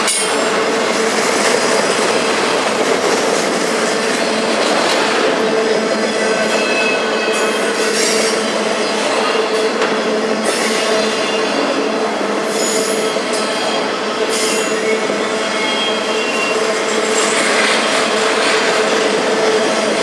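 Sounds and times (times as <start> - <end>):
train wheels rolling on rail: 0.0 - 20.0
high squealing of wheels: 6.0 - 9.8, 10.4 - 11.8, 12.4 - 18.8.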